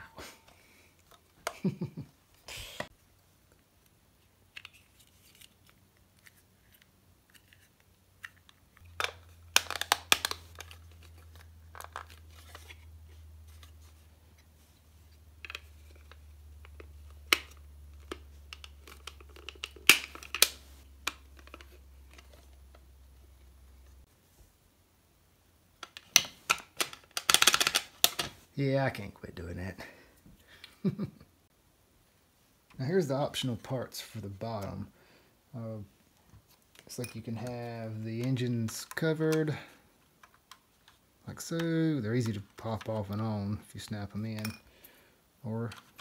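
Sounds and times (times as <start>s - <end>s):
plastic parts clicking: 4.5s - 12.8s, 15.4s - 22.8s, 25.8s - 28.4s, 38.2s - 43.3s, 45.6s - 46.0s.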